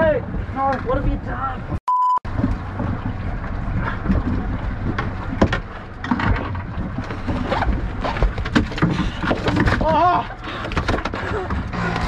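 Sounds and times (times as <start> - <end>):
wind buffeting microphone: 0.0 - 9.4
knocks and clunks on boat: 0.0 - 12.0
outboard motor rumble: 0.2 - 12.0.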